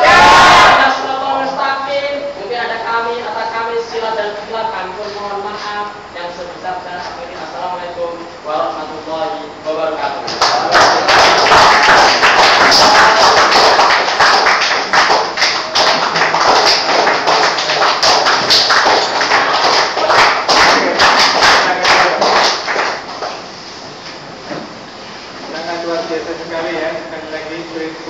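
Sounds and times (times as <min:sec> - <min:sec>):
audience clapping: 0:10.3 - 0:23.4.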